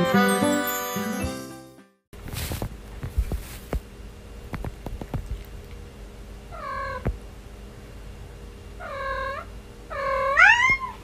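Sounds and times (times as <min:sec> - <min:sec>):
cat meowing: 0:08.8 - 0:11.0.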